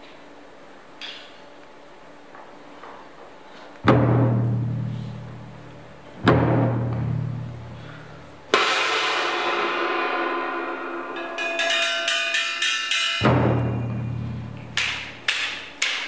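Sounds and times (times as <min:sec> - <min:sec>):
big low drum hit: 0:03.9 - 0:12.1, 0:13.2 - 0:14.8
drum ensemble playing: 0:03.9 - 0:15.8
cymbal crash: 0:06.3 - 0:15.2.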